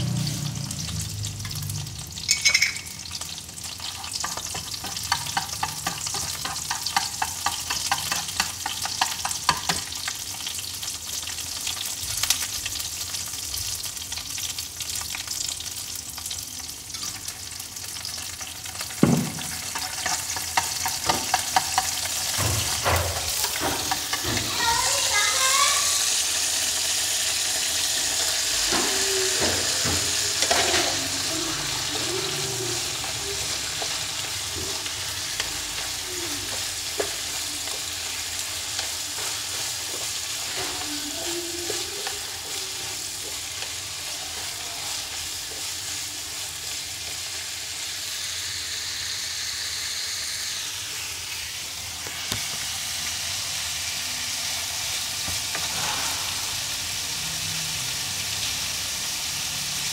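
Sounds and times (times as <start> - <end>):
food sizzling in hot oil: 0.0 - 59.9
chopsticks clicking against pan: 4.2 - 9.8.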